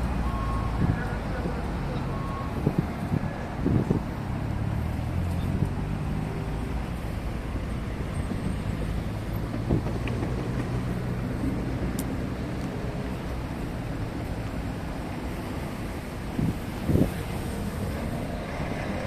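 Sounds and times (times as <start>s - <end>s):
cars idling in traffic: 0.0s - 19.0s.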